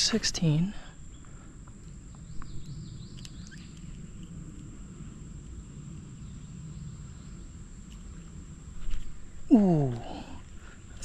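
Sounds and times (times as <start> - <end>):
insects droning: 0.0 - 11.0
faint clicks: 1.6 - 4.7
bird chirping: 2.1 - 4.0.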